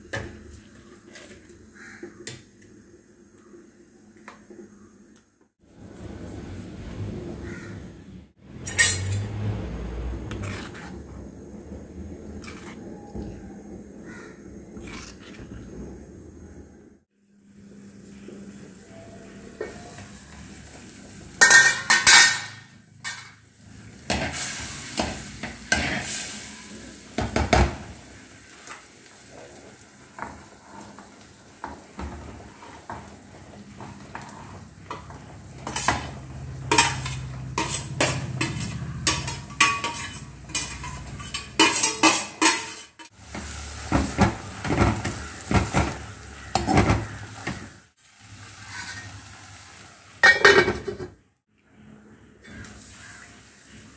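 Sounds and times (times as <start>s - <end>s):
cookware clanking: 8.6s - 9.6s, 21.4s - 23.4s, 34.9s - 43.1s, 50.2s - 51.2s
spoon scraping steel bowl: 10.2s - 11.2s, 12.4s - 12.8s, 36.7s - 43.1s.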